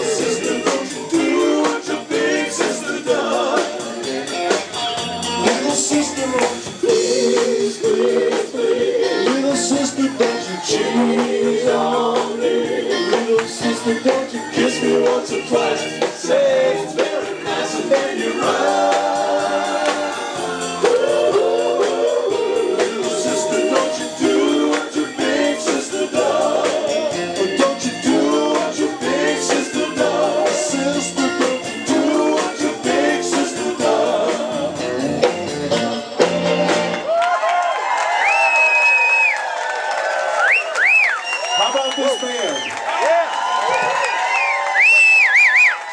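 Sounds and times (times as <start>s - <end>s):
male lead vocal: 0.0s - 35.4s
backing voices singing: 0.0s - 36.2s
electric bass: 0.0s - 37.0s
guitars: 0.0s - 37.1s
drum kit beat: 0.0s - 37.2s.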